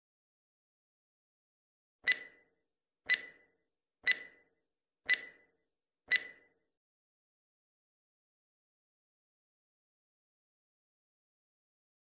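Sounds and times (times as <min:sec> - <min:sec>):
sharp timer ticks: 0:02.0 - 0:02.5, 0:03.1 - 0:04.5, 0:05.1 - 0:05.5, 0:06.1 - 0:06.5.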